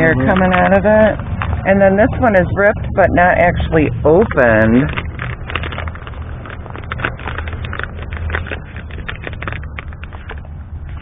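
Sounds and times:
steady low rumble: 0.0 - 11.0
plastic bags crinkling: 3.6 - 11.0.

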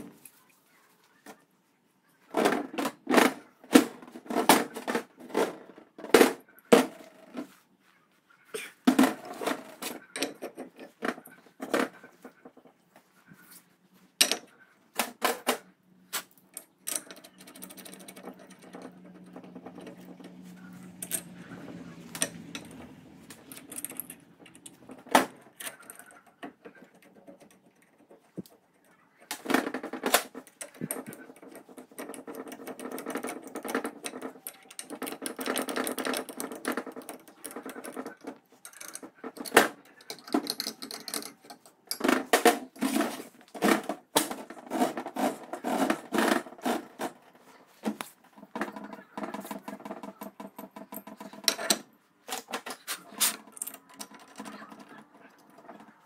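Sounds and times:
metal parts clicking and knocking: 8.9 - 12.0, 14.2 - 15.6, 16.2 - 47.4, 48.0 - 56.0
metal scraping and rubbing: 16.1 - 49.9.

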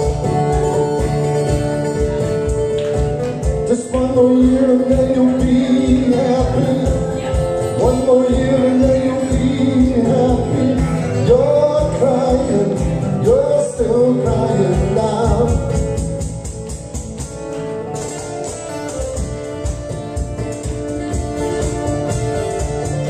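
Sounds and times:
instrumental accompaniment with beat: 0.0 - 23.0
man singing through a pa: 3.6 - 16.2.

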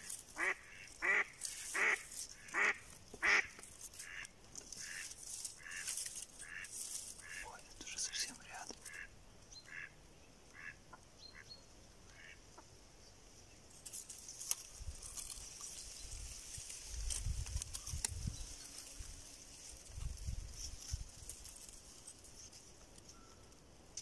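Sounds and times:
rustling and crackling: 0.0 - 9.1, 13.7 - 24.0
duck quacking: 0.4 - 5.0, 9.7 - 9.9, 10.5 - 11.5.

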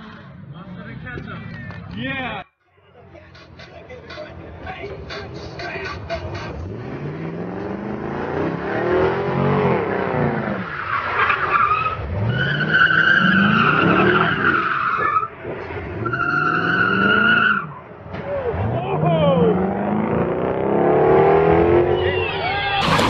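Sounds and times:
car engine revving: 3.4 - 17.6, 18.4 - 22.1, 22.8 - 23.0
tyres squealing: 10.6 - 15.4, 22.0 - 23.0.

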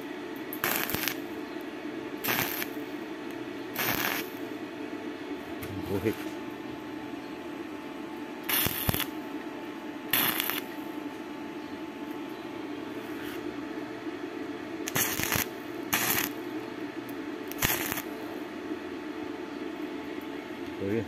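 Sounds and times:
crackling arc welding: 0.0 - 1.4, 2.2 - 4.5, 8.4 - 9.2, 10.1 - 10.8, 14.8 - 16.4, 17.4 - 18.2
steady low hum: 0.0 - 21.0.

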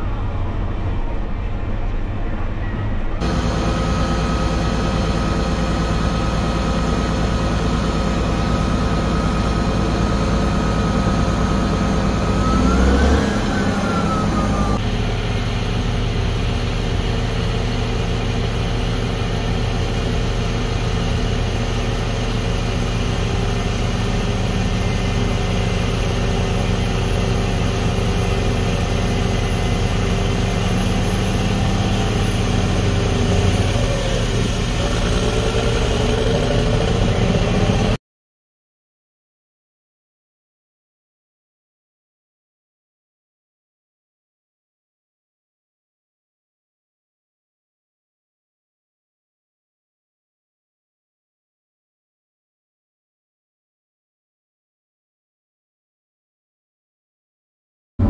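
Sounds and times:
bulldozer diesel engine running: 0.0 - 38.0.

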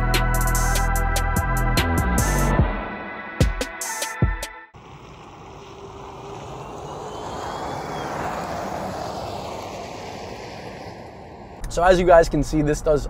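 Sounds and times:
car driving past: 4.8 - 11.8.

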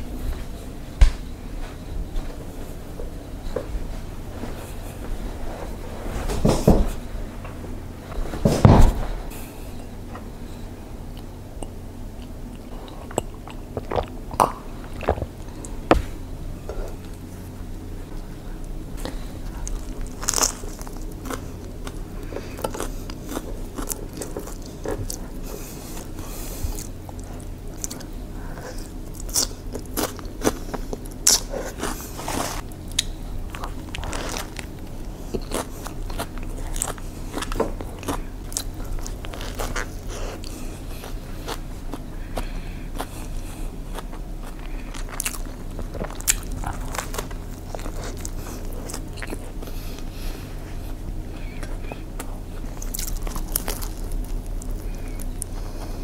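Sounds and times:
biting and chewing sandwich: 19.0 - 56.0.

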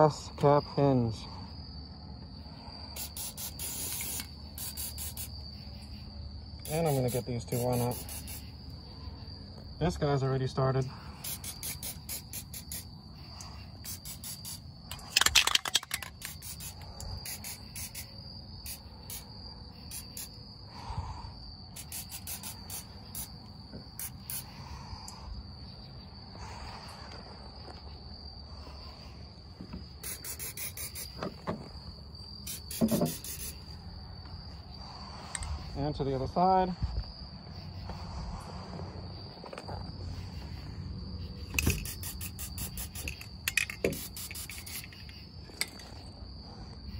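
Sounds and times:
crickets chirping: 0.0 - 46.9
aerosol can spray hiss: 3.0 - 5.4, 6.6 - 8.6, 11.2 - 12.9, 13.8 - 14.6, 16.2 - 19.3, 19.9 - 20.4, 21.7 - 23.4, 24.0 - 24.5, 30.0 - 31.2, 32.4 - 33.6, 41.6 - 43.2, 43.8 - 45.1.

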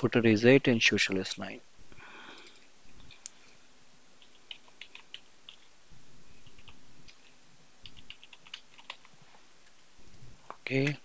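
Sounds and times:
keyboard typing clicks: 4.2 - 5.7, 7.8 - 9.1.

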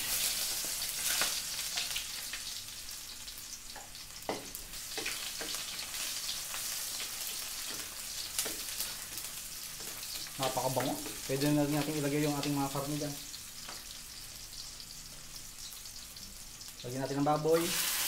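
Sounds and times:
onion sizzling in hot oil: 0.0 - 18.0
spatula knocking and scraping pan: 3.8 - 5.8, 7.6 - 9.0.

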